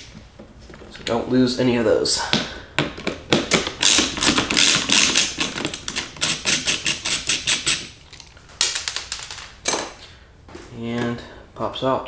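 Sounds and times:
ratchet screwdriver clicking: 3.8 - 7.9.

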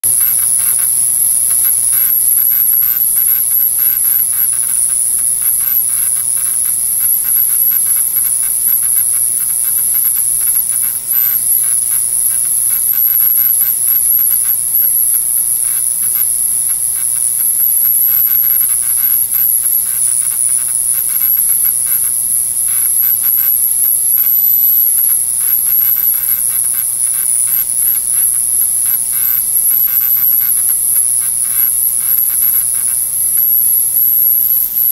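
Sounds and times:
ultrasonic cleaner whine: 0.0 - 34.9.

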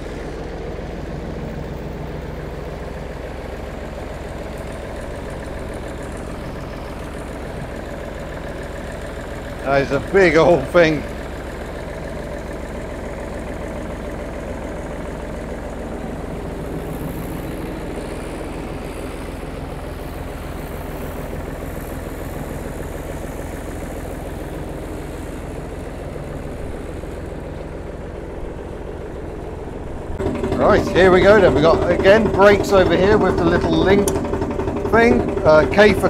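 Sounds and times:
diesel tractor engine running: 0.0 - 36.0.

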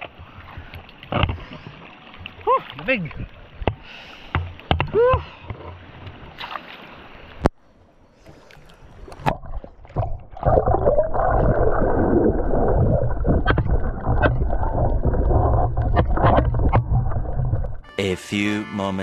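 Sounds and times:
underwater water rushing: 8.4 - 17.9.

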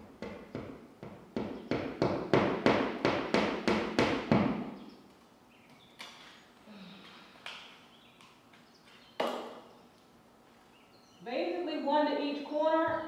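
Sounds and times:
hammer striking nail: 0.2 - 4.7.

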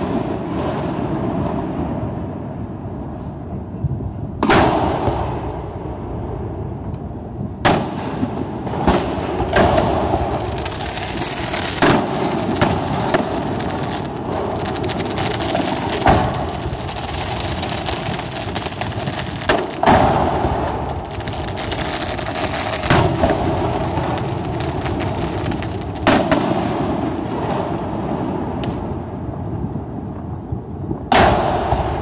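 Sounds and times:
firework crackle: 4.4 - 32.0
firework shells bursting: 8.8 - 27.8.

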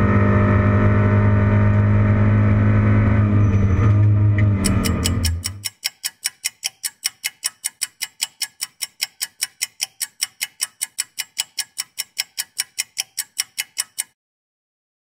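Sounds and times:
steady sharp ticking: 4.6 - 14.2.

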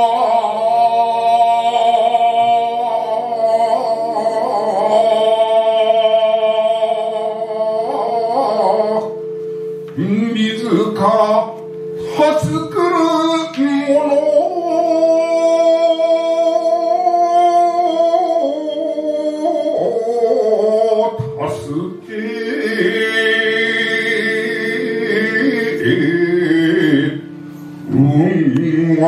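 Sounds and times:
sustained instrumental accompaniment: 0.0 - 29.0
man chanting poetry: 10.0 - 27.2, 27.9 - 29.0.

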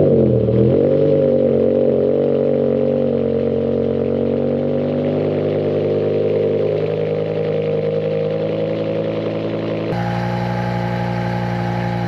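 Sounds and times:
car engine idling loudly: 0.0 - 12.0.

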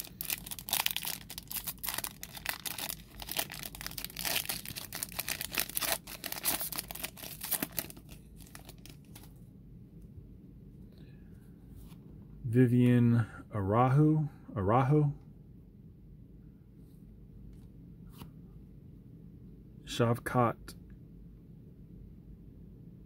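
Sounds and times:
foil pack crinkling: 0.0 - 9.3.

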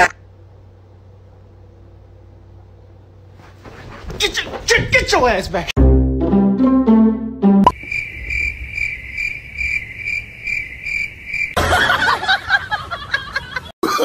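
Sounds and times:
high chirping: 7.6 - 11.6.

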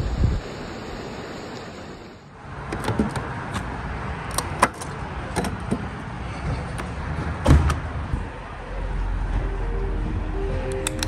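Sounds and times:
forecourt and traffic noise: 0.4 - 11.0
fuel door and cap clicks: 2.7 - 5.9, 10.7 - 11.0.

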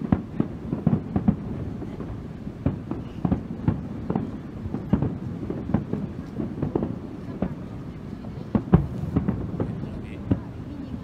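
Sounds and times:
low continuous rumble: 0.0 - 11.0
firework shells bursting: 2.6 - 10.8.

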